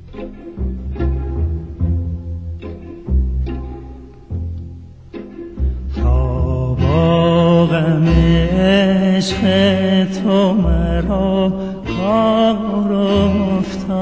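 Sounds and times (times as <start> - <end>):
low sustained string notes: 0.0 - 14.0
man singing with warbling ornaments: 5.9 - 14.0.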